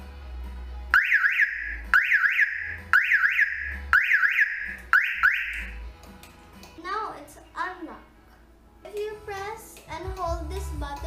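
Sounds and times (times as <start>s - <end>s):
car alarm chirps: 1.0s - 5.8s.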